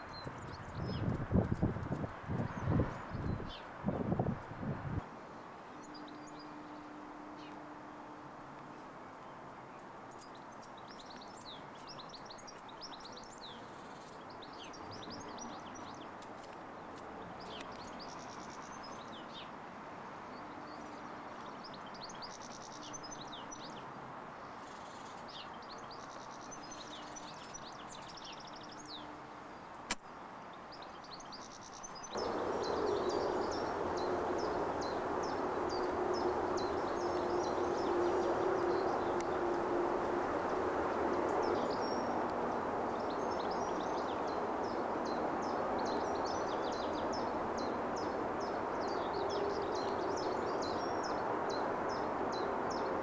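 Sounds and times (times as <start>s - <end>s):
small birds chirping: 0.0s - 4.0s, 8.8s - 19.5s, 30.0s - 53.0s
background rush: 32.1s - 53.0s
low steady tone: 32.2s - 42.6s.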